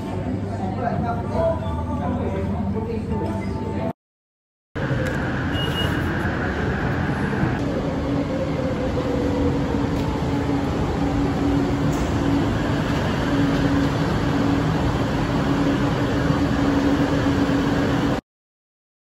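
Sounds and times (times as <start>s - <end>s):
train rumbling: 4.8s - 18.2s.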